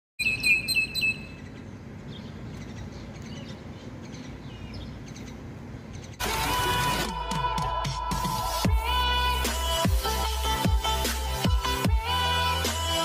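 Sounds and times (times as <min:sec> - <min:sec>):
starlings chirping: 0:00.2 - 0:06.2.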